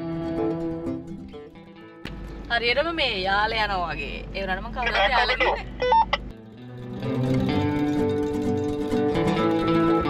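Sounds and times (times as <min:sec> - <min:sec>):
background instrumental music: 0:00.0 - 0:03.0, 0:05.7 - 0:10.0.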